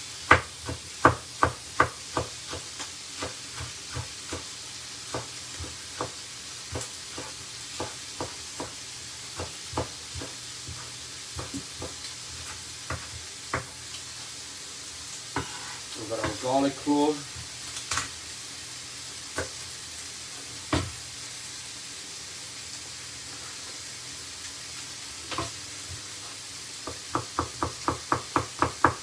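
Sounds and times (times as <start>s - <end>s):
steaks sizzling in frying pan: 0.0s - 29.0s
knife chopping on wooden board: 0.3s - 4.5s, 5.1s - 8.8s, 9.4s - 13.8s, 26.8s - 29.0s.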